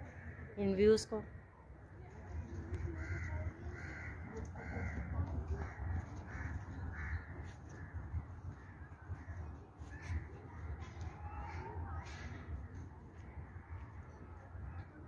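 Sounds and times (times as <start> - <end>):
crows cawing: 0.0 - 0.7, 2.7 - 10.3
wind rumbling on microphone: 1.9 - 15.0.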